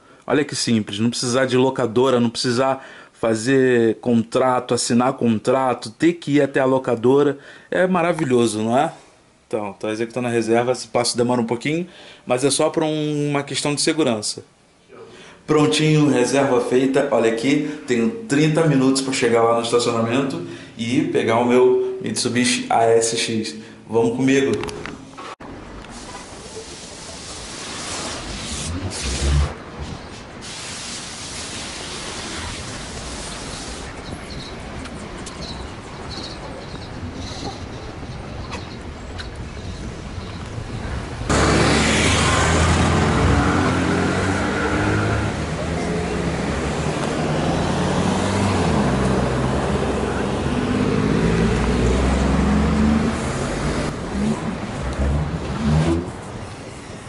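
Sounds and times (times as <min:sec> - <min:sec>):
cars passing with tyre noise: 0:25.4 - 0:57.0
car engines running: 0:33.9 - 0:56.8.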